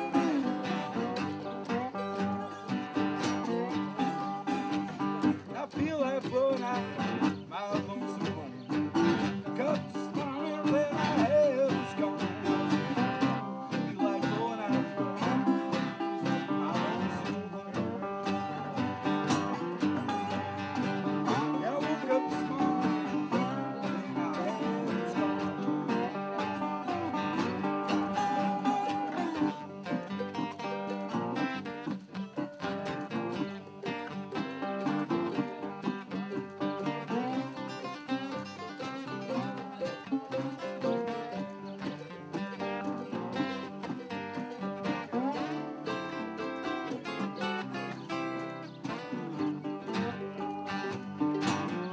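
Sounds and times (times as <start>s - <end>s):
man singing: 0.0s - 31.6s, 33.1s - 51.9s
acoustic guitars playing blues: 0.0s - 51.9s.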